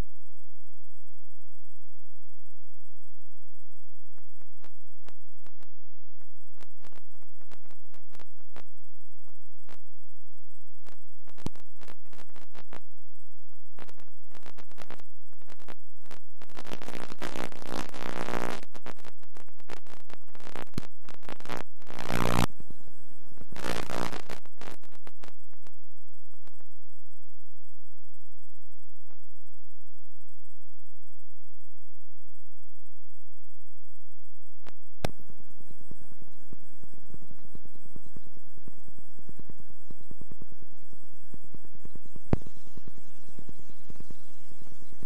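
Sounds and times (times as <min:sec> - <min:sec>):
tape playback hum: 0:00.0 - 0:33.0, 0:34.6 - 0:45.0
clicks and crackles: 0:04.1 - 0:10.0, 0:10.8 - 0:26.8
thin high whine: 0:07.7 - 0:25.5
buzzing noise bursts: 0:13.8 - 0:22.5, 0:23.5 - 0:25.7.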